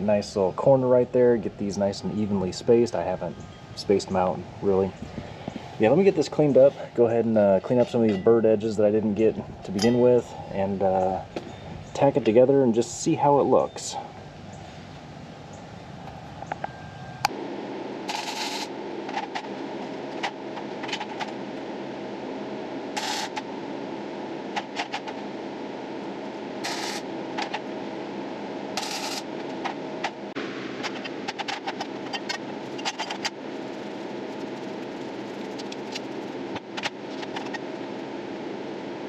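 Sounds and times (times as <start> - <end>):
steady background hiss: 0.0 - 39.0
arc welder crackling: 18.0 - 21.7, 22.8 - 23.6, 24.5 - 27.8, 28.7 - 37.8.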